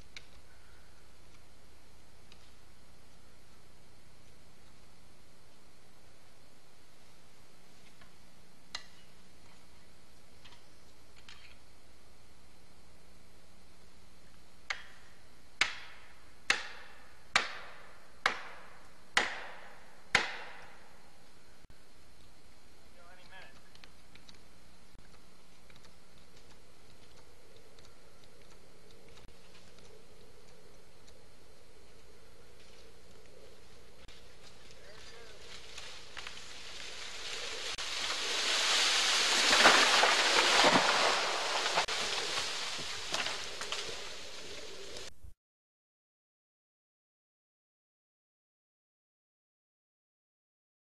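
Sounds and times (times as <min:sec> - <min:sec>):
rush of leaves and branches: 0:33.9 - 0:45.1
tree crashing down: 0:34.5 - 0:45.1.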